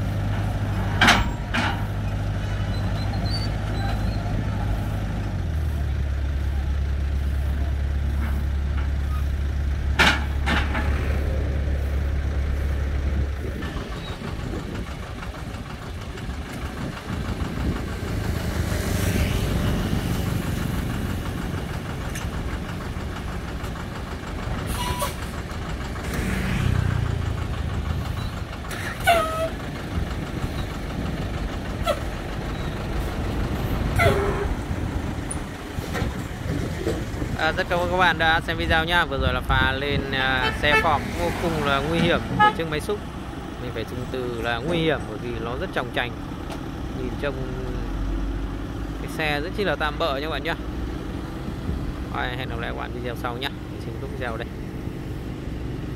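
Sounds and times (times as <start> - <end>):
diesel engine idling: 0.0 - 55.9
excavator engine: 0.0 - 55.9
metal knocks and clanks: 0.2 - 3.0, 9.9 - 11.3.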